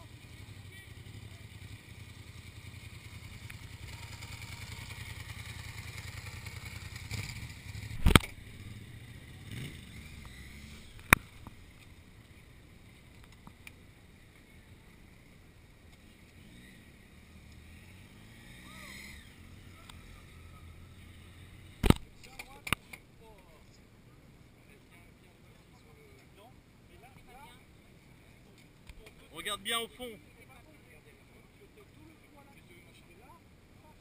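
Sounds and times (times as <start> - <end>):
motorcycle engine running: 0.0 - 13.2
sharp click: 8.0 - 8.4, 21.8 - 23.0.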